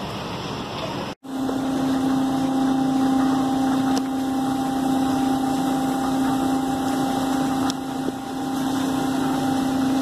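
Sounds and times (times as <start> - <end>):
machinery hum: 0.0 - 10.0
water spray hissing: 3.1 - 10.0.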